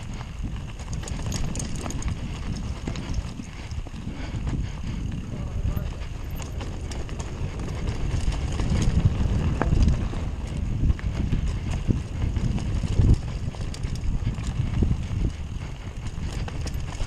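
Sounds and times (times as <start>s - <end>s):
bike rattling and clacking: 0.0s - 17.0s
tyres rumbling over dirt: 4.8s - 17.0s.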